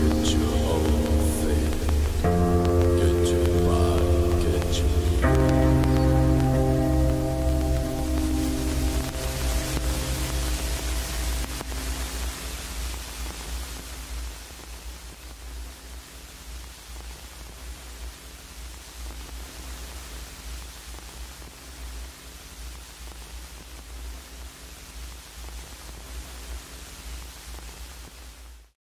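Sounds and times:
soundtrack music: 0.0 - 12.6
vinyl record surface noise: 0.0 - 28.8.

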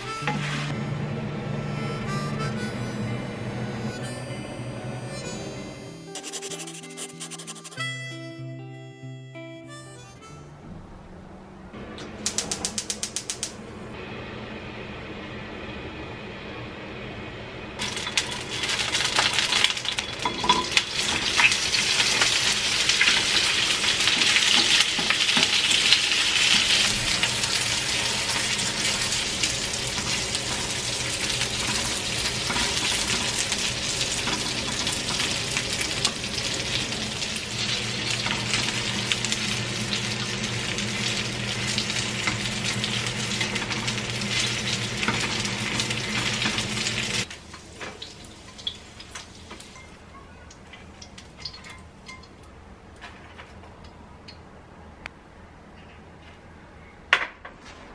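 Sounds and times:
chopsticks clicking against pan: 12.2 - 13.6
dumplings sizzling in oil: 17.8 - 50.0.

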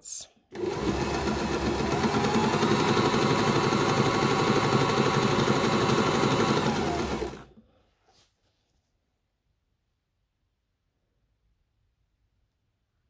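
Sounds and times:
sewing machine running: 0.5 - 7.6.

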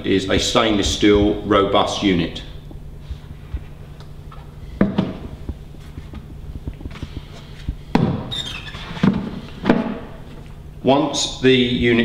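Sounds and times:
plastic buckets knocking: 4.8 - 7.3, 8.9 - 10.2
plastic squeak: 8.3 - 9.0.

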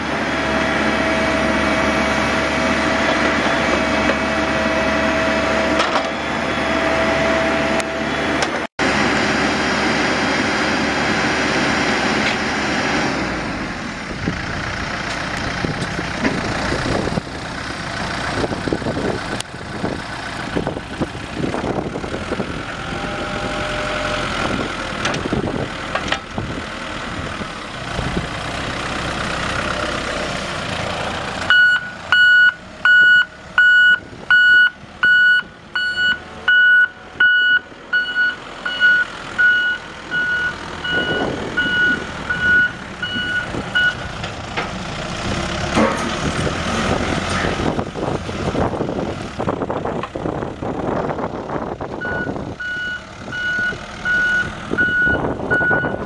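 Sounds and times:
diesel engine running: 0.0 - 56.0
reverse alarm beeping: 31.5 - 44.0, 52.0 - 56.0.

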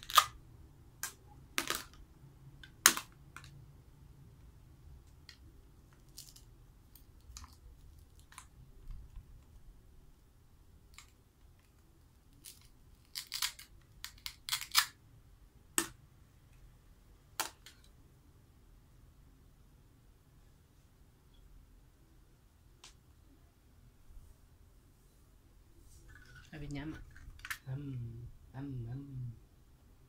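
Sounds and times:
plastic toy pieces clicking: 12.4 - 15.0.

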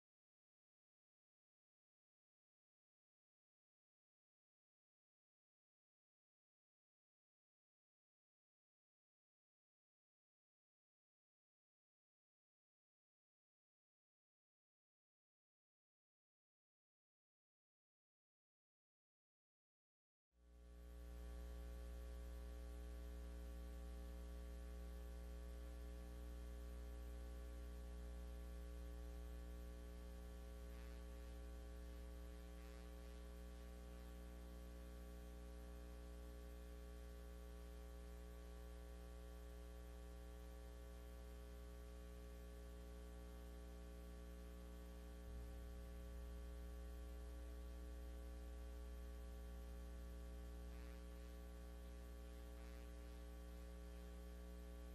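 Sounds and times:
low electrical mains hum: 20.4 - 54.9.

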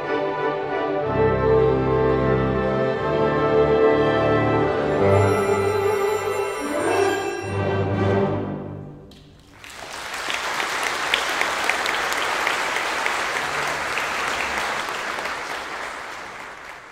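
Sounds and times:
audience applauding: 9.1 - 16.9.

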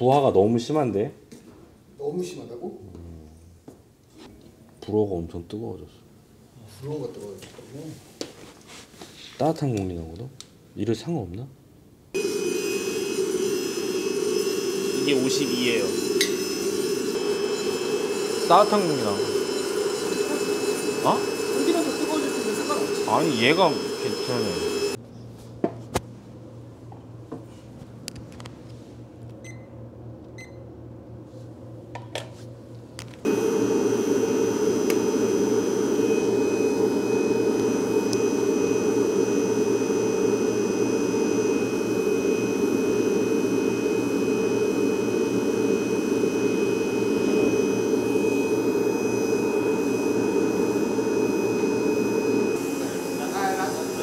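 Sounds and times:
air blower rushing with whine: 12.2 - 25.0, 33.2 - 54.0
low hum: 33.3 - 54.0.

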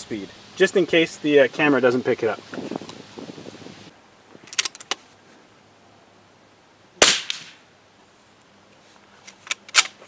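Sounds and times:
rifle shot crack: 7.0 - 7.6.

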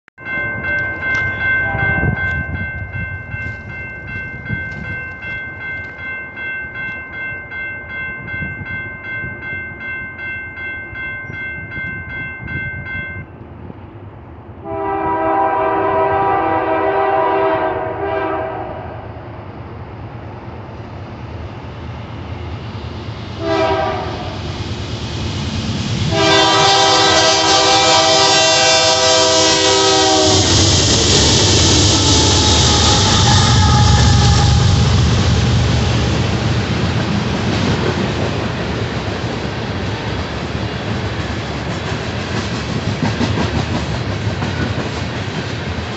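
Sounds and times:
bell ringing: 0.2 - 13.4
train horn blasts: 1.6 - 2.2, 14.6 - 19.1, 23.4 - 24.4, 26.1 - 30.6, 32.0 - 35.3
locomotive engines rumbling: 18.5 - 45.9.

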